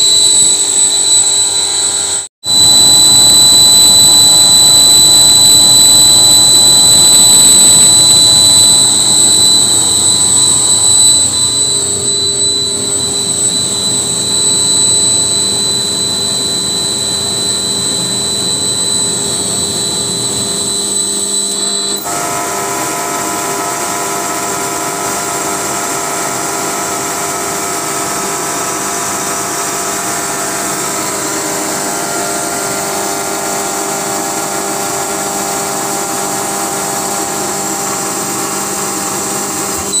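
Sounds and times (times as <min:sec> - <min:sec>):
high compressor whine: 0:00.0 - 0:40.0
air compressor running: 0:02.0 - 0:21.0.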